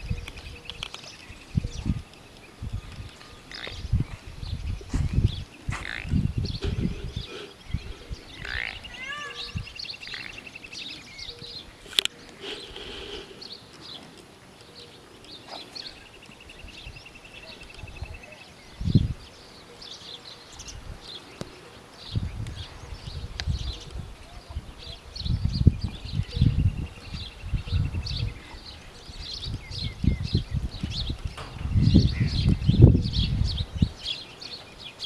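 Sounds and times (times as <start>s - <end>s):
small birds chirping: 0.0s - 35.0s
bird trill: 5.8s - 11.8s.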